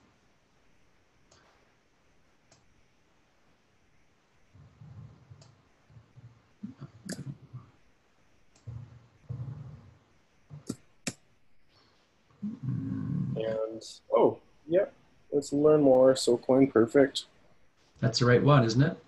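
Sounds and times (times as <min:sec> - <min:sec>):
computer mouse clicking: 0:02.5 - 0:02.7, 0:06.7 - 0:07.7
low muffled sounds: 0:03.2 - 0:19.0.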